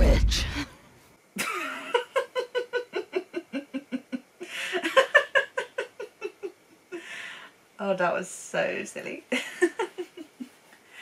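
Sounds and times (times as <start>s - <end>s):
woman laughing hard: 1.4s - 7.0s, 9.4s - 10.6s.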